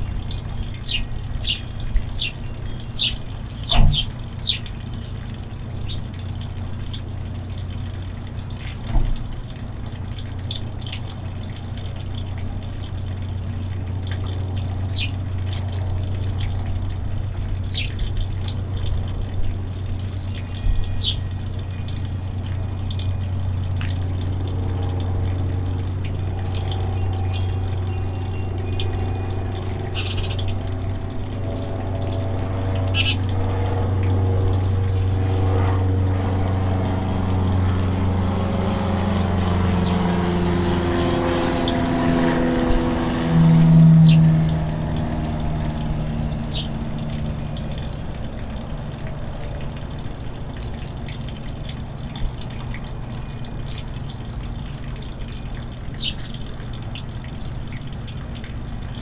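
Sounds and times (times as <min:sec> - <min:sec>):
watery pump hum: 0:00.0 - 0:59.0
finches chirping: 0:00.3 - 0:04.7, 0:20.0 - 0:21.3, 0:26.5 - 0:30.6, 0:32.9 - 0:33.2
held musical tones: 0:20.3 - 0:32.9.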